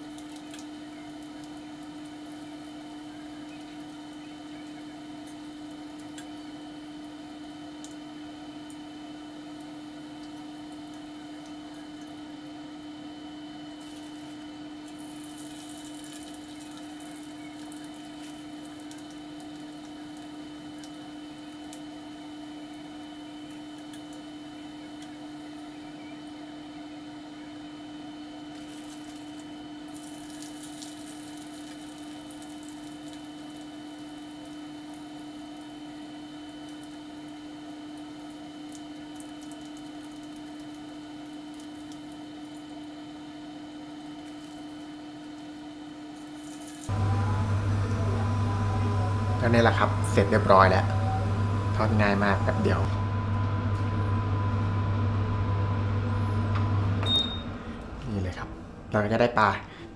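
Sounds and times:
fish deep-frying in oil: 0:00.0 - 0:52.8
low hum: 0:46.9 - 0:59.9.

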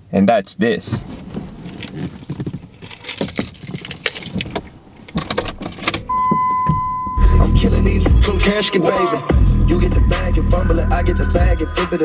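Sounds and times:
small knocks and rustles: 0:00.9 - 0:06.0
keys jangling: 0:02.7 - 0:06.0.

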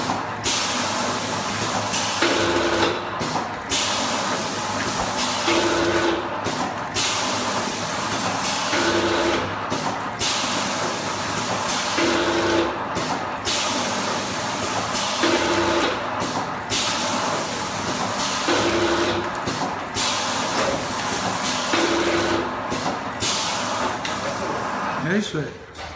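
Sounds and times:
packing machine hum: 0:00.0 - 0:25.1
packing machine hiss: 0:13.4 - 0:24.8.

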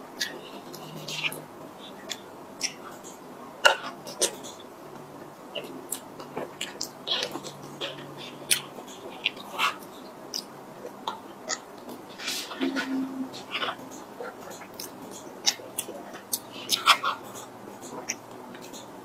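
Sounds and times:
spoon scraping cardboard tray: 0:12.2 - 0:13.4.

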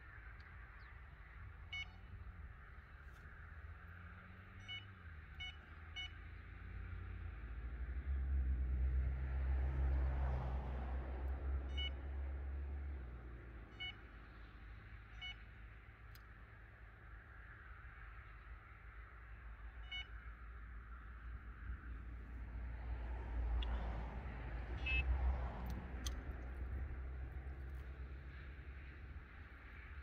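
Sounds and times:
low vehicle rumble: 0:00.0 - 0:30.0
electronic bite alarm beeps: 0:04.6 - 0:06.2, 0:15.1 - 0:15.4.

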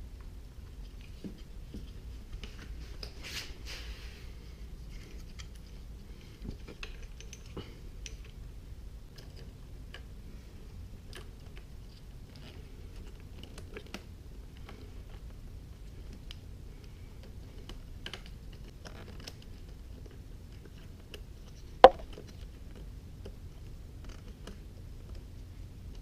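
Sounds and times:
low steady hum: 0:21.8 - 0:22.1.

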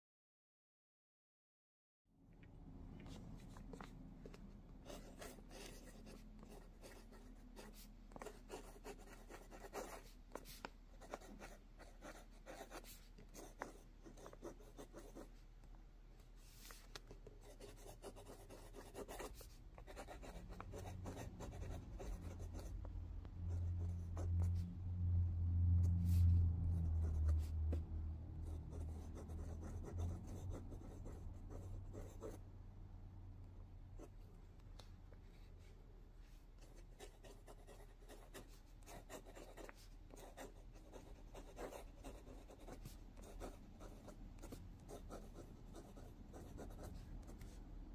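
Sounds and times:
low hum: 0:19.8 - 0:34.6
pen nib scratching paper: 0:36.6 - 0:47.6.

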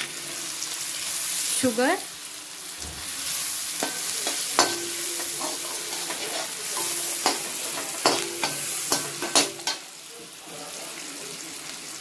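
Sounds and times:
vegetables sizzling in oil: 0:00.0 - 0:12.0
metal spoon scraping a pan: 0:03.0 - 0:09.9.

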